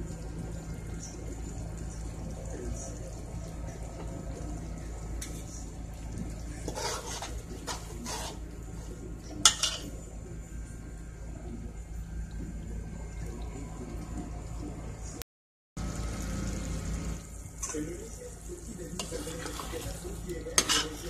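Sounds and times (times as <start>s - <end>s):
steady low hum: 0.0s - 15.2s
metal spoon scraping pot: 6.6s - 8.4s, 20.6s - 21.0s.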